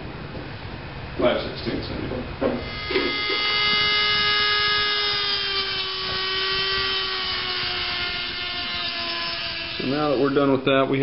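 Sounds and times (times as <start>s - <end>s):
rotary tool grinding metal: 2.6s - 10.6s.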